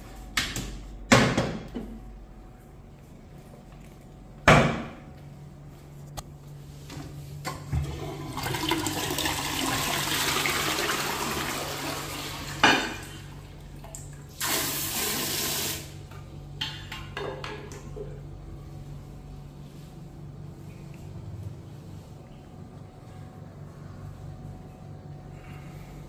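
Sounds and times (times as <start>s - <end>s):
toilet flushing: 7.7s - 16.0s.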